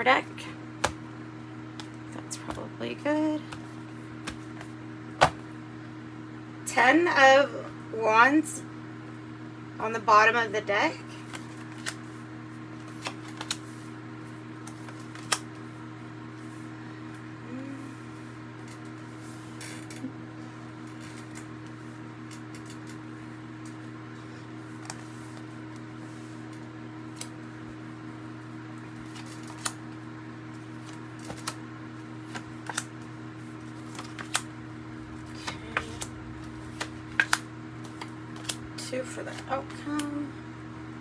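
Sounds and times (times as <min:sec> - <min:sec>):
cards tapping and slapping: 0:00.8 - 0:01.0, 0:03.5 - 0:05.4, 0:30.8 - 0:31.6
low hum: 0:32.2 - 0:41.0.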